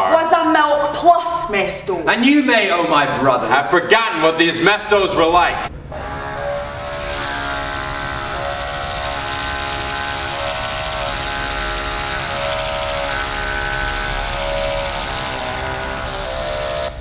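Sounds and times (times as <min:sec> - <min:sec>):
droning chord: 0:05.0 - 0:17.0
higher swelling note: 0:05.0 - 0:17.0.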